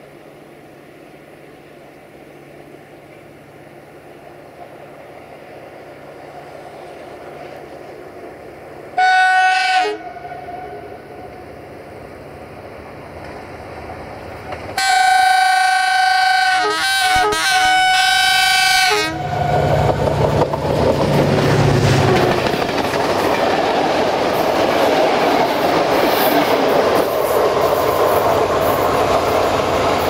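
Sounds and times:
locomotive air horn: 9.0 - 11.3, 14.8 - 19.8
locomotive engine rumble: 18.3 - 30.0.

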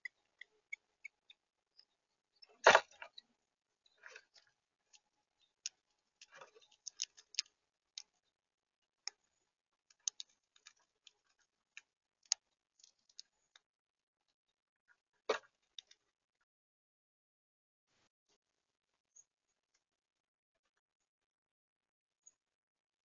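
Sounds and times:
beaks pecking on a tray: 0.0 - 8.3, 9.0 - 13.6
seeds being cracked: 5.6 - 8.1.

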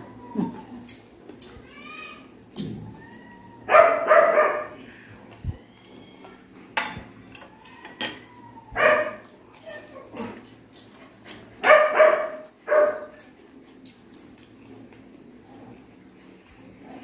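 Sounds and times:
dog barking indoors: 3.6 - 4.8, 8.7 - 10.5, 11.6 - 13.3.

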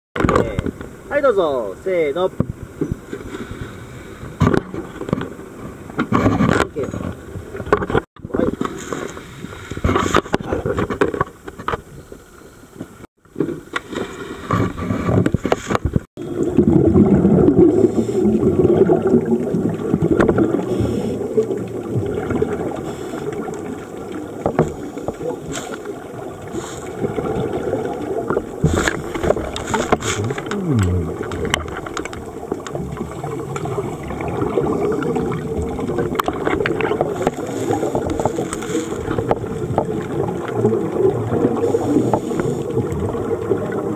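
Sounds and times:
water churning: 13.2 - 43.9
underwater bubbles gurgling: 14.2 - 43.9.

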